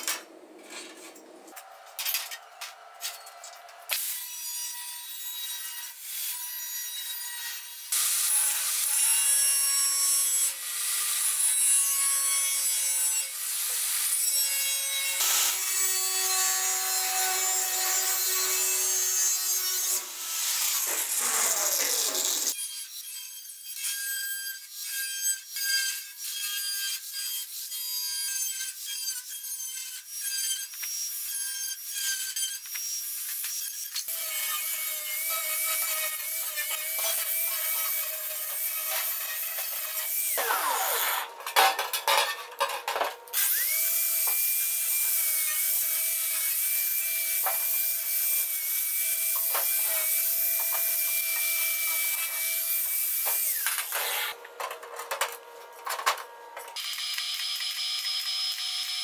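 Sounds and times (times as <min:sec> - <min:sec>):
angle grinder grinding steel: 0:00.6 - 0:23.7, 0:30.0 - 0:56.9.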